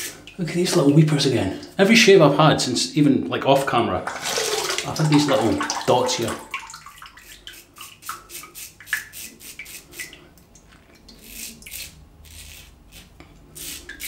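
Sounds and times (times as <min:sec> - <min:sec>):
razor scraping stubble: 0:11.2 - 0:14.0.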